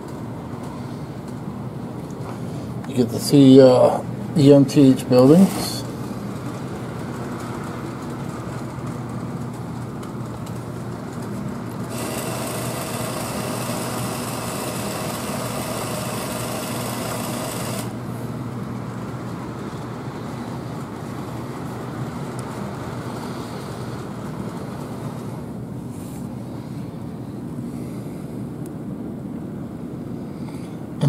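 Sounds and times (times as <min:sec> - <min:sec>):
low electrical hum: 0:00.0 - 0:31.0
model train motor whirr: 0:11.8 - 0:18.0.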